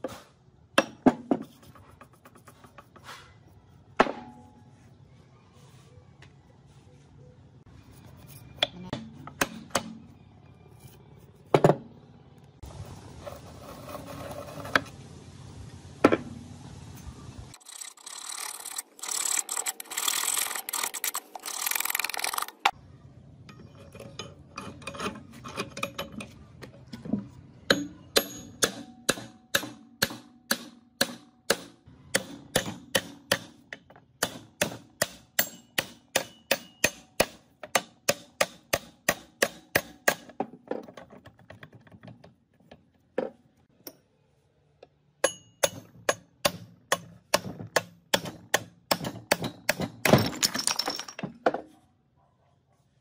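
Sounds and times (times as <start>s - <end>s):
metal parts knocking: 45.3s - 51.6s.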